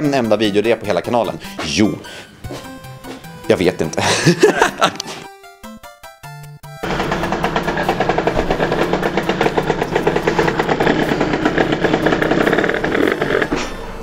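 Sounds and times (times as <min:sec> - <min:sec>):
go-kart engine running: 0:06.8 - 0:14.0.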